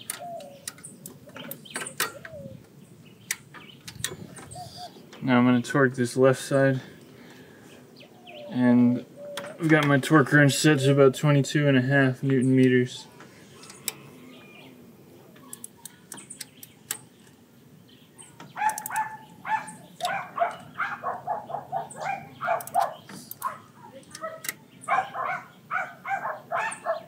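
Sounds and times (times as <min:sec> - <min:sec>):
small dog yapping: 0:18.6 - 0:27.0.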